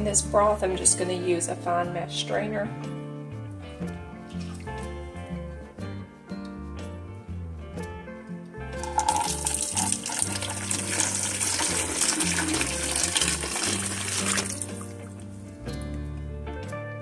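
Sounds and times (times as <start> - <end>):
background music: 0.0 - 17.0
liquid pouring through strainer: 8.8 - 15.1.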